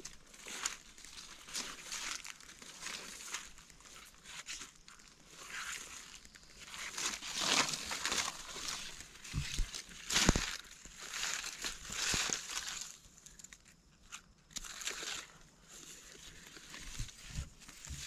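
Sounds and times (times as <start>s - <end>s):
dry leaves crunching and rustling: 0.0s - 13.2s.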